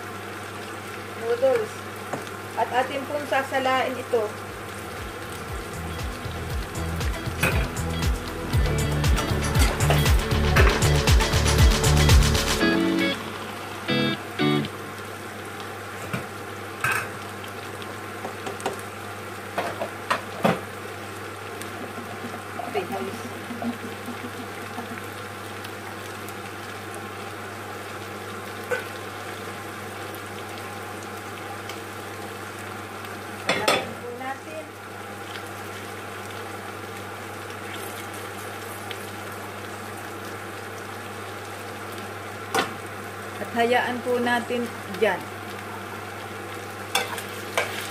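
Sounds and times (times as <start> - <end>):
vegetables sizzling in a pan: 0.0 - 47.9
water boiling: 0.0 - 47.9
low hum: 5.0 - 15.3.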